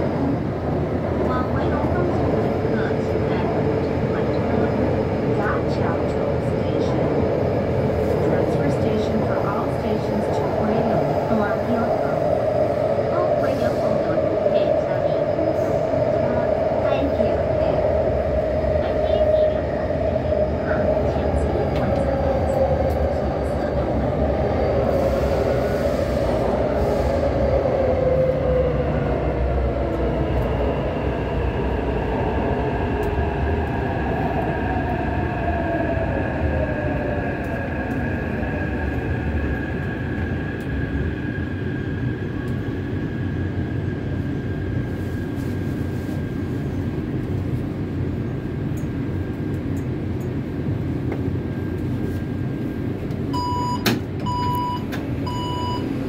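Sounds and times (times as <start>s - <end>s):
click: 42.4s - 42.6s, 48.7s - 48.9s, 49.5s - 50.4s
door signal beeps: 53.3s - 56.0s.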